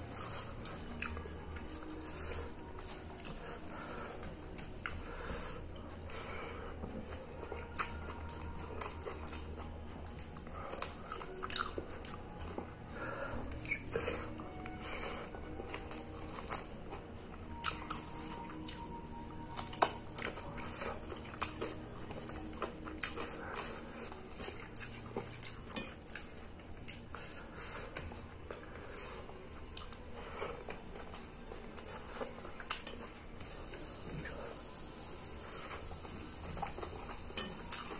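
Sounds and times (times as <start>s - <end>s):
wet chewing and lip smacking: 0.0s - 34.3s.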